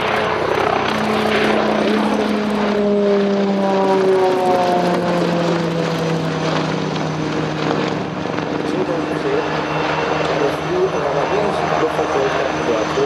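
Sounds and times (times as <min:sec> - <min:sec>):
helicopter flying past: 0:00.0 - 0:13.0.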